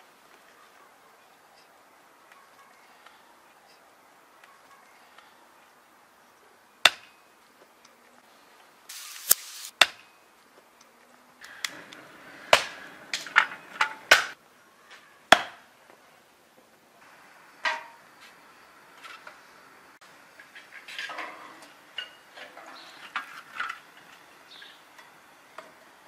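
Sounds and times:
hatchet chopping log: 0:06.8 - 0:07.1, 0:09.2 - 0:10.0, 0:15.3 - 0:15.6.

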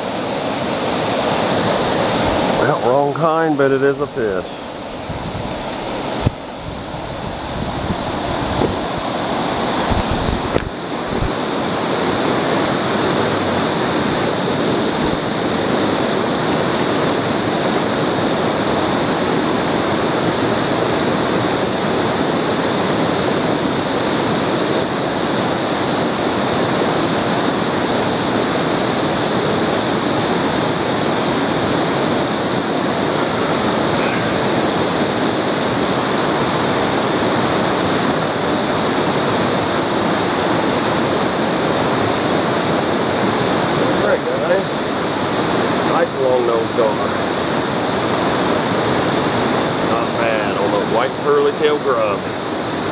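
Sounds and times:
water rushing into river: 0:00.0 - 0:52.9
low bumps: 0:09.7 - 0:11.4.

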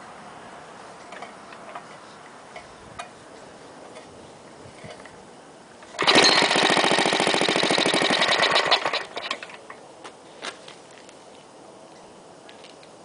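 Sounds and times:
small engine running: 0:05.9 - 0:09.6.

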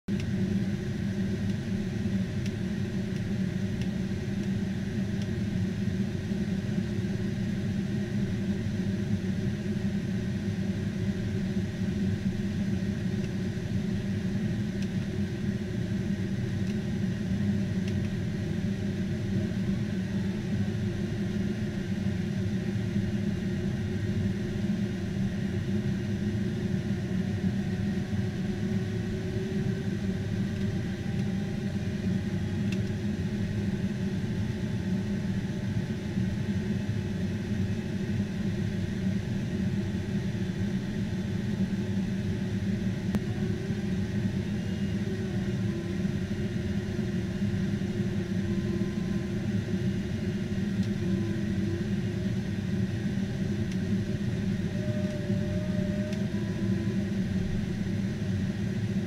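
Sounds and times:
aircraft in-flight rumble: 0:00.0 - 0:59.0
faint steady whine: 0:00.1 - 0:59.0.

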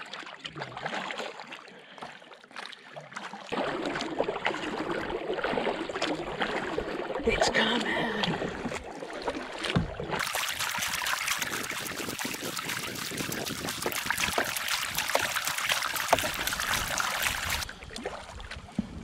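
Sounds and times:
paddle water splashing: 0:00.0 - 0:19.0
paddle knocks: 0:09.6 - 0:10.2, 0:13.9 - 0:17.0.

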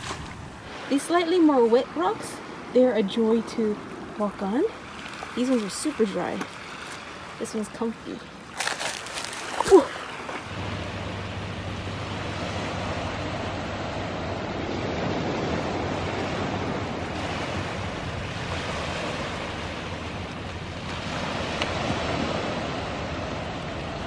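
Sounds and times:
small waves breaking on shore: 0:00.0 - 0:24.0
wind on microphone: 0:12.3 - 0:24.0.

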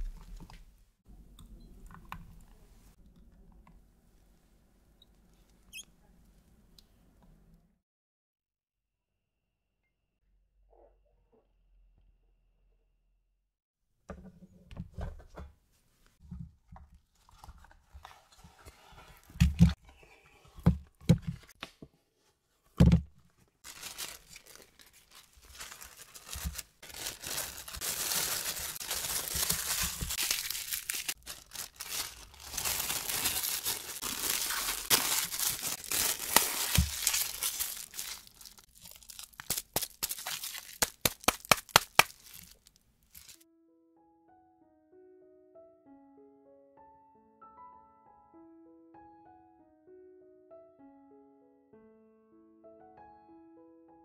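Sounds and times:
paper and plastic wrap crinkling: 0:23.6 - 0:43.4.

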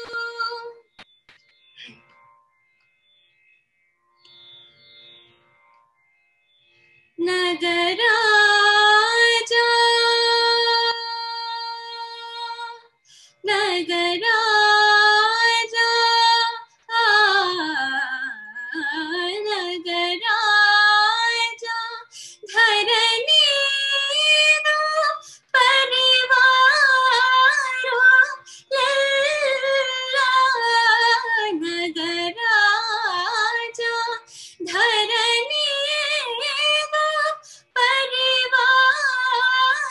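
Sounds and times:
woman singing wordless phrases: 0:00.0 - 0:00.8, 0:13.5 - 0:39.9
singer breathing: 0:13.0 - 0:13.4, 0:22.1 - 0:22.4, 0:34.3 - 0:34.6.

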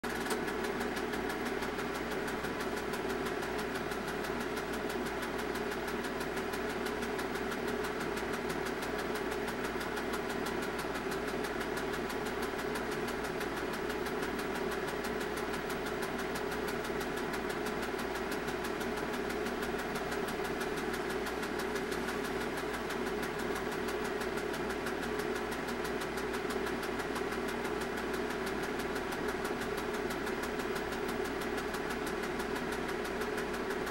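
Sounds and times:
film projector whirring: 0:00.0 - 0:33.9.

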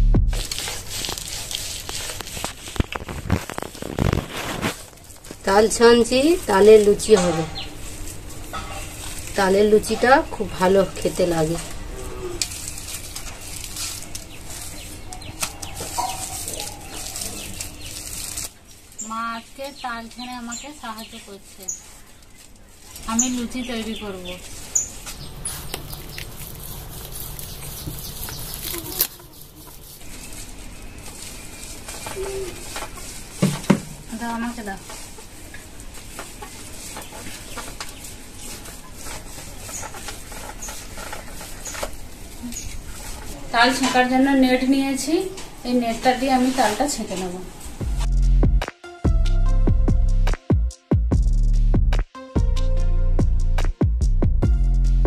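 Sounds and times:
fruit rubbing against bamboo basket: 0:00.4 - 0:48.4
wet squelching of fruit pulp: 0:24.9 - 0:33.4.

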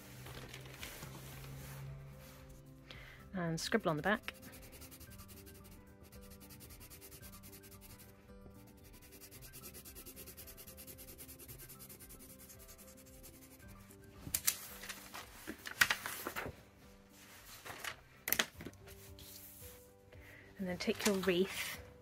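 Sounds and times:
paper rustling and scraping: 0:00.0 - 0:02.4, 0:14.3 - 0:16.6, 0:17.2 - 0:18.0, 0:20.8 - 0:21.8
pencil scribbling on paper: 0:04.2 - 0:13.8.

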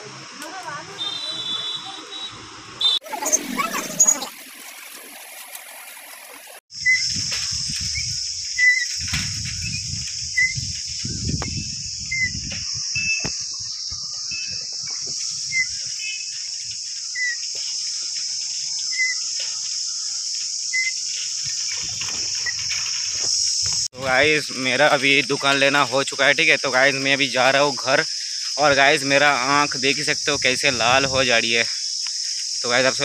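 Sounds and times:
high-pitched insect chorus: 0:06.7 - 0:33.0
wind on microphone: 0:06.8 - 0:15.9.

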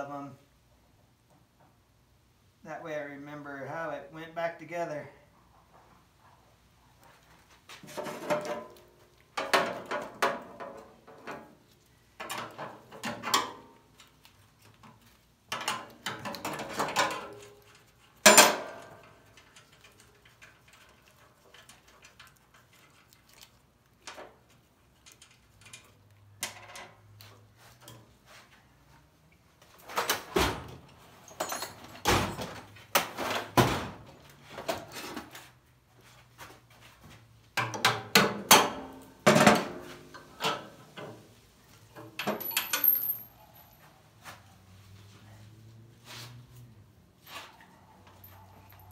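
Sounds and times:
tools and wheel hardware clanking: 0:07.8 - 0:11.6, 0:12.2 - 0:23.0, 0:24.0 - 0:28.2, 0:29.8 - 0:35.5, 0:37.6 - 0:43.9, 0:47.1 - 0:48.9.

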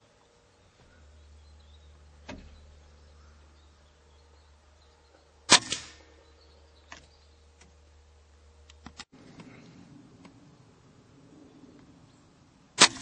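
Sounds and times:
silenced air rifle shot: 0:05.5 - 0:06.2, 0:12.8 - 0:13.0.

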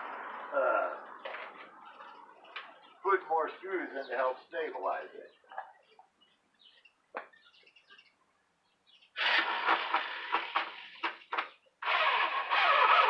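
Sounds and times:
power drill driving screws into wood: 0:09.2 - 0:13.0.

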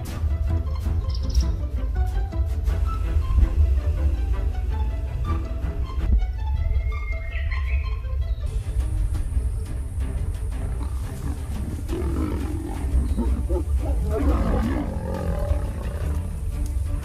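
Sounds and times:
lioness growling: 0:10.6 - 0:16.6.

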